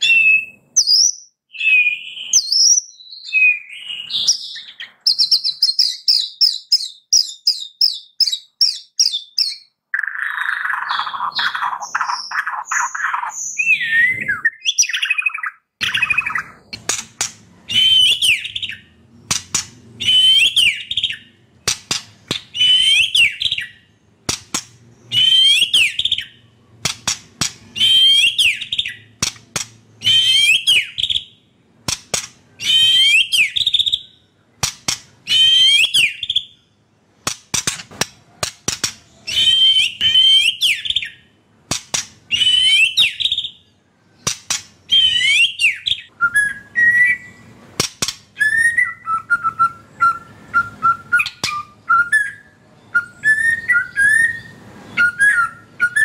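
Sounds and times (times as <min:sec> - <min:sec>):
bird singing: 0:00.0 - 0:37.0, 0:38.4 - 0:56.0
sharp clicks: 0:26.8 - 0:27.7, 0:31.9 - 0:32.4, 0:34.6 - 0:35.2, 0:37.2 - 0:39.1, 0:44.2 - 0:44.8.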